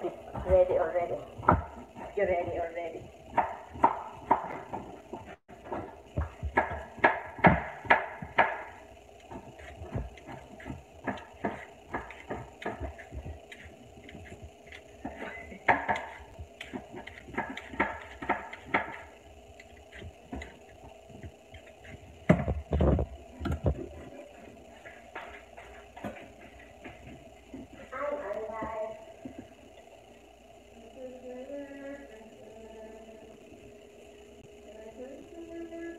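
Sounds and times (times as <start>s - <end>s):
utensils tapping on counter: 3.3s - 24.0s.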